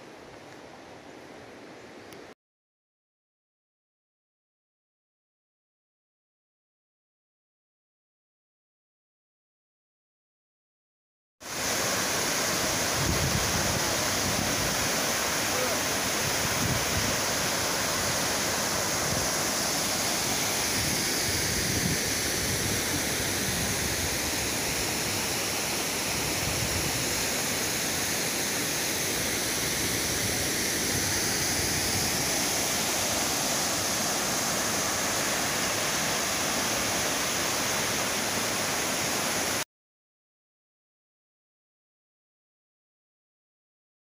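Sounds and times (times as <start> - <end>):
waterfall rushing: 11.5 - 39.6.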